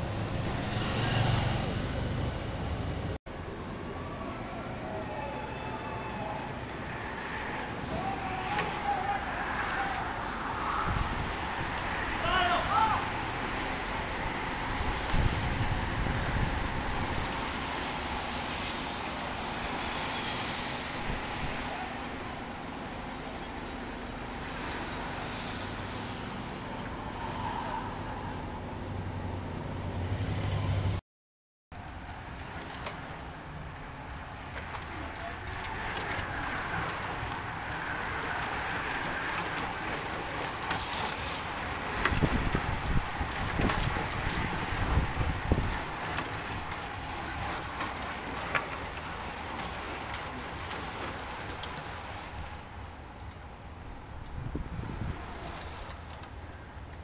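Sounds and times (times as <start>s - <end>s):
bicycles riding past: 0.0s - 3.2s, 5.0s - 31.0s, 31.8s - 57.0s
bicycle tyre hiss and rushing air: 6.7s - 29.2s, 53.6s - 56.8s
wind buffeting microphone: 7.5s - 29.8s, 31.8s - 57.0s.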